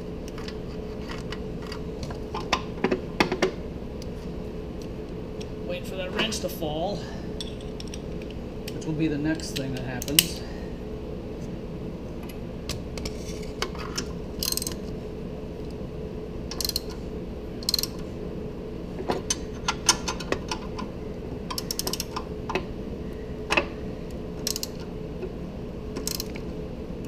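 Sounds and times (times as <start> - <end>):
hand ratchet clicking: 14.4 - 14.8, 16.5 - 17.0, 17.6 - 18.0, 21.5 - 22.2, 24.4 - 24.8, 26.0 - 26.4.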